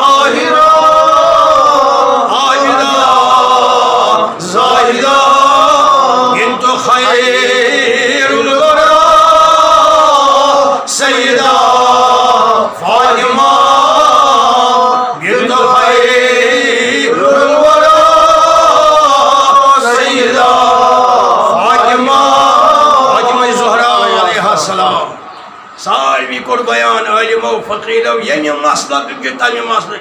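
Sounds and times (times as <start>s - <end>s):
man chanting: 0.0s - 20.5s, 21.1s - 25.2s.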